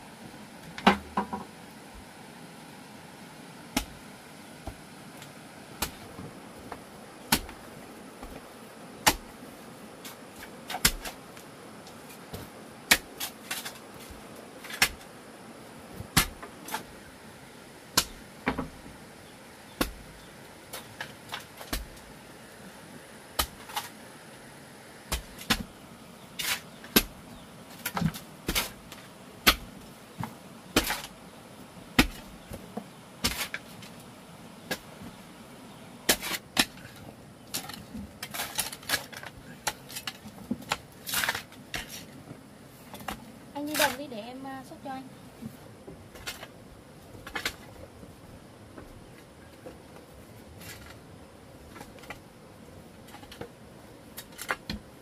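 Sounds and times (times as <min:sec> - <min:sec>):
steady hiss: 0:00.0 - 0:55.0.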